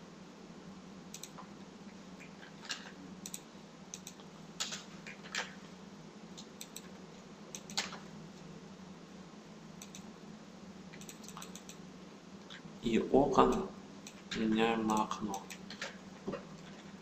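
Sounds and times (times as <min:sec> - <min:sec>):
faint low hum: 0:00.0 - 0:17.0
keyboard and mouse clicks: 0:01.1 - 0:01.5, 0:02.2 - 0:05.6, 0:06.4 - 0:06.9, 0:07.5 - 0:08.0, 0:09.8 - 0:10.1, 0:10.9 - 0:11.8, 0:13.4 - 0:16.0.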